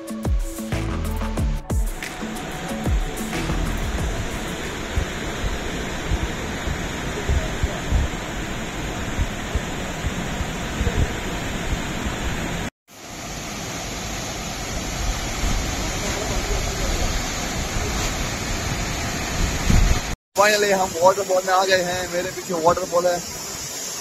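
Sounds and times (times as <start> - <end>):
waterfall and stream rushing: 1.8 - 24.0
wind buffeting microphone: 4.0 - 12.3, 15.4 - 20.2.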